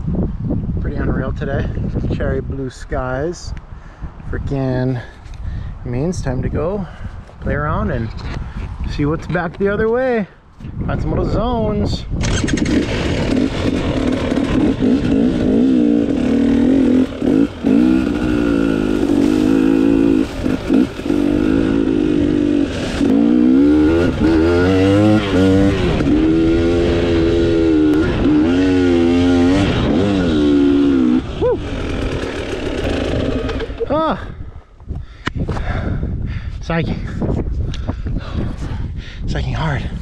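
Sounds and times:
dirt bike engine revving: 12.2 - 34.2.

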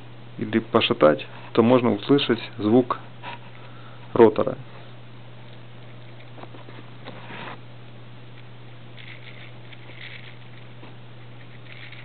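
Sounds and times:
watch rotor rattling: 9.0 - 12.0.

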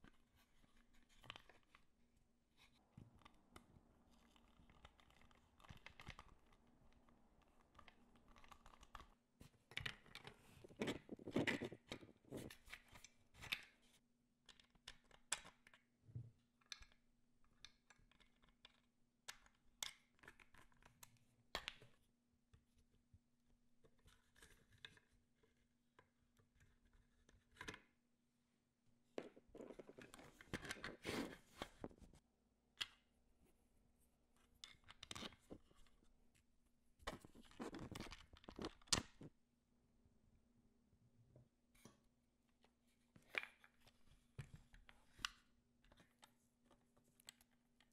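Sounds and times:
plastic parts clicking and scraping: 4.1 - 13.8, 29.2 - 32.2, 37.0 - 39.3.

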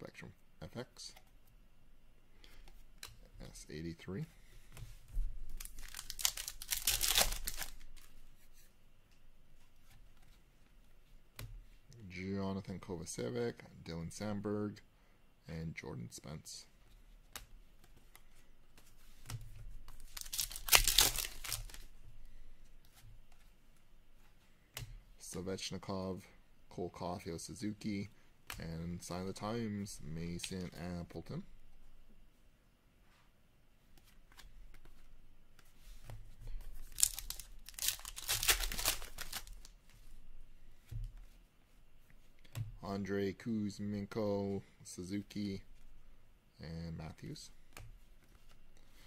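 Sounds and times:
trading cards rustling: 4.9 - 8.2, 18.0 - 21.9, 36.6 - 39.7.

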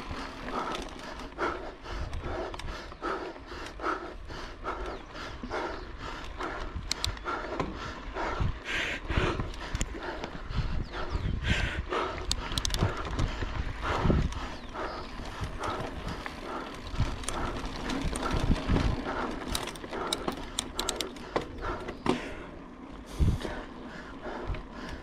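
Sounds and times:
wind rumble on microphone: 0.0 - 22.0, 22.9 - 25.0
bike rattling and clicking: 0.0 - 25.0.

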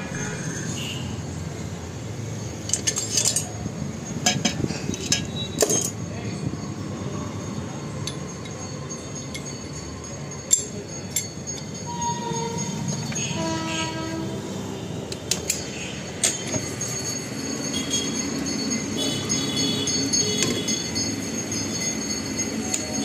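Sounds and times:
metal clinks: 2.6 - 6.1, 7.2 - 14.1, 15.1 - 23.0
horn-like tone: 11.9 - 14.9.

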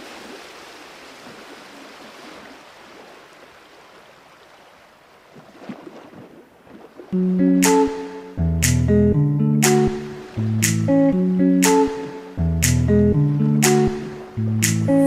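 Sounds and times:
ocean surf on beach: 0.0 - 8.4, 9.6 - 15.0
guitar music: 7.2 - 15.0.

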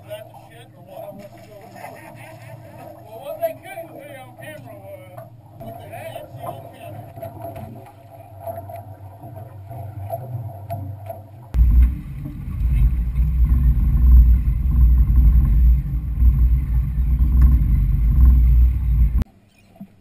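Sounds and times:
boat engine hum: 0.0 - 19.2
deep rumble of hull and wind: 5.4 - 19.3.

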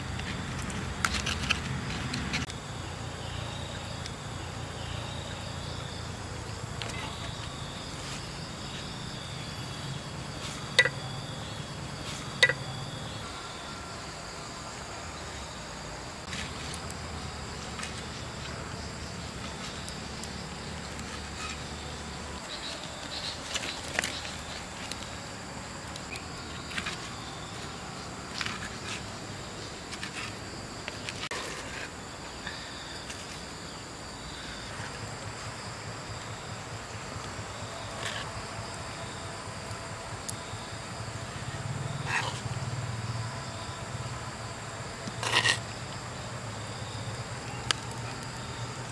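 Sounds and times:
high insect chirring: 0.0 - 48.9
stone pestle grinding in mortar: 45.2 - 45.6.

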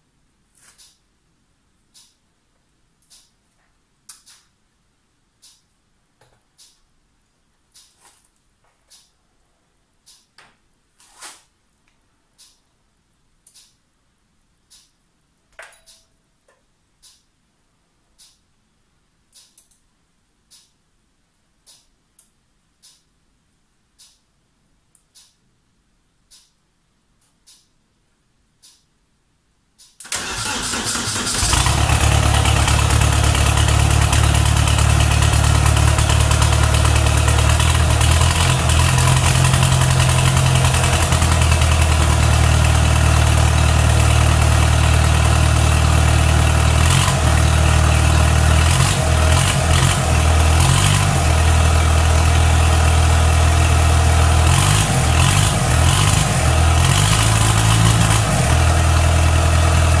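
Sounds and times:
diesel engine starting and revving: 30.0 - 60.0.

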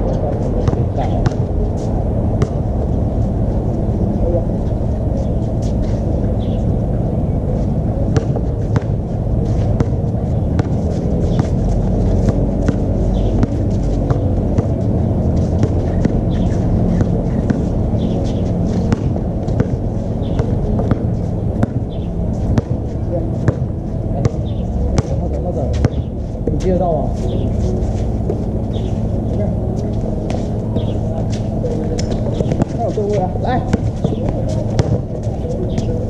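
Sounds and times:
steady low rumble: 0.0 - 36.0
basketball bouncing on court: 0.6 - 1.4, 2.4 - 2.6, 8.2 - 9.0, 9.8 - 14.8, 15.4 - 17.7, 18.9 - 22.8, 23.4 - 26.1, 32.3 - 35.2.

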